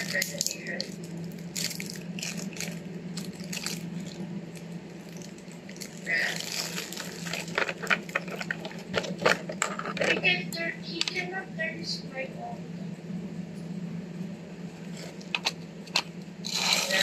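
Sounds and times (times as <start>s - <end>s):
plastic packaging crinkling: 0.0s - 10.2s, 16.4s - 17.0s
steady low hum: 0.0s - 17.0s.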